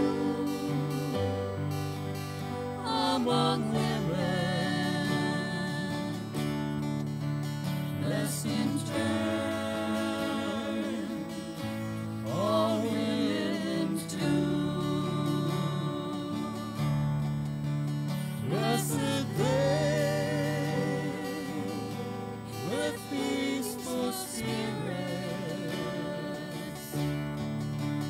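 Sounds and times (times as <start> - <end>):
group of singers: 0.0 - 17.2, 18.1 - 28.0
acoustic guitar: 0.0 - 28.0
grand piano: 0.0 - 28.0.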